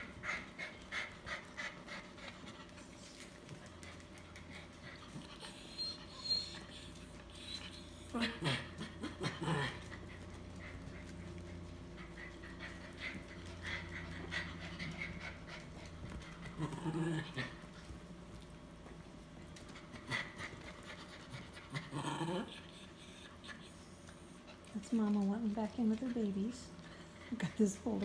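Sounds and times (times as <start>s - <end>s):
dog whining: 4.6s - 15.7s, 19.9s - 24.7s.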